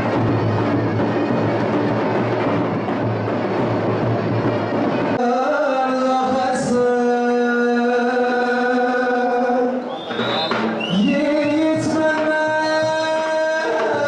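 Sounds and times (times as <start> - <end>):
drum-led festival music: 0.0 - 14.0
man chanting through loudspeakers: 5.2 - 14.0.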